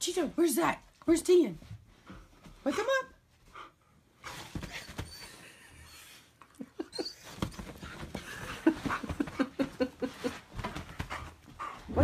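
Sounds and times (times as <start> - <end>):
bed covers rustling: 7.2 - 12.0.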